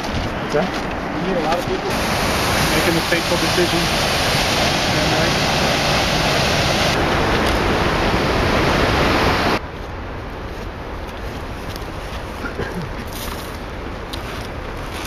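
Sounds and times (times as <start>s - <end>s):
creek rushing over rocks: 0.0s - 9.6s
outdoor hiss: 1.8s - 9.6s.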